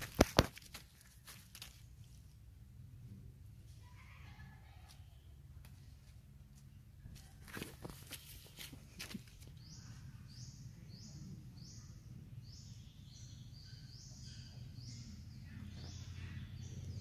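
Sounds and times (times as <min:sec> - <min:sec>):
bird chirping: 0:06.6 - 0:17.0.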